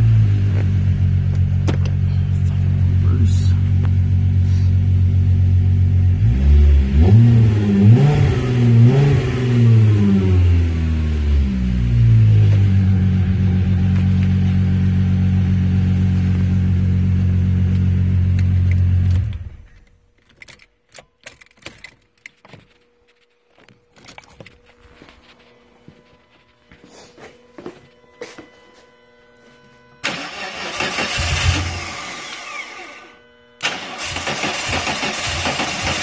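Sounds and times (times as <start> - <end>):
car engine idling: 0.0 - 7.1, 7.8 - 19.9, 30.0 - 36.0
car engine starting and running: 0.0 - 22.9, 30.0 - 36.0
faint clicks and handling noise: 18.4 - 25.6.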